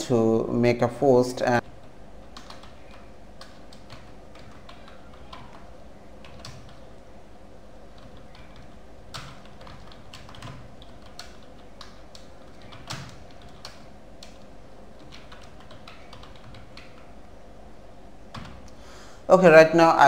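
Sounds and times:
low steady hum: 0.0s - 20.0s
keyboard typing: 1.6s - 7.0s, 7.8s - 17.2s, 18.3s - 18.8s.

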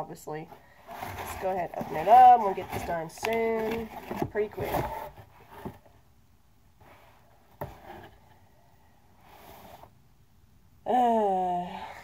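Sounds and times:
box handling noises: 0.5s - 6.0s, 6.8s - 8.4s.

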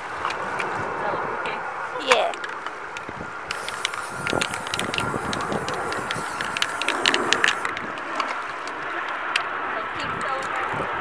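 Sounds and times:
sharp clicks: 2.1s - 8.7s
spray paint can hissing: 3.5s - 7.7s.

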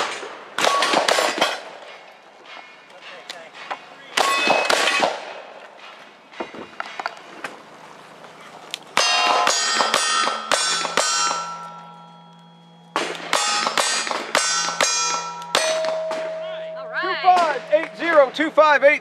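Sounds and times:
rifle shots: 0.0s - 1.9s, 4.2s - 5.5s, 12.9s - 16.4s
steel targets ringing: 2.4s - 5.2s, 9.0s - 18.6s.

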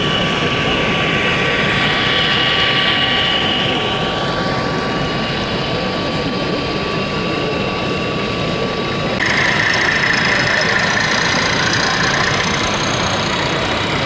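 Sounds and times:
high-pitched whine: 0.0s - 14.0s
busy exhibition hall din: 5.0s - 14.0s.

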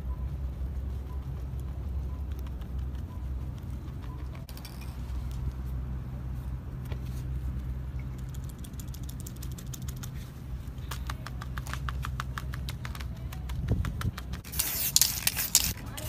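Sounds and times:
low hum: 0.0s - 14.5s
spray can ball rattling: 13.9s - 16.0s.

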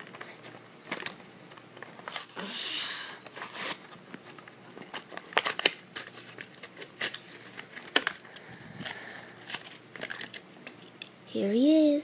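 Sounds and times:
plastic blister pack tearing: 0.0s - 2.6s, 3.2s - 10.5s.

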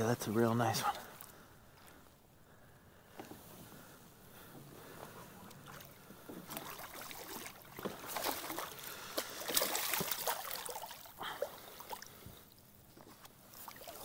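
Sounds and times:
fish splashing at the surface: 5.7s - 12.2s, 13.0s - 14.0s.

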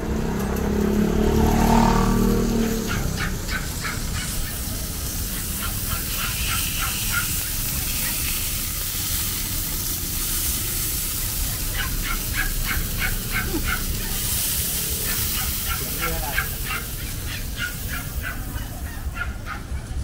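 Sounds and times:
outdoor background hiss: 0.0s - 20.0s
animal yelping: 2.5s - 8.5s, 11.2s - 20.0s.

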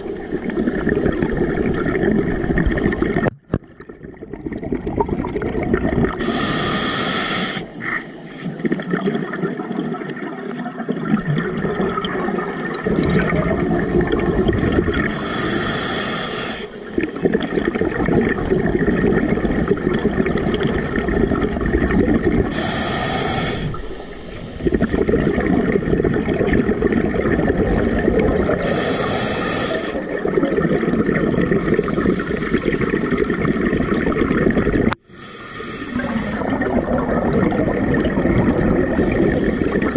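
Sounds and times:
rush of exhaled bubbles: 0.0s - 35.1s, 35.8s - 39.9s
regulator hissing inhale: 6.2s - 8.5s, 15.0s - 16.8s, 22.5s - 25.1s, 28.6s - 30.1s, 31.6s - 33.2s, 35.0s - 36.4s.

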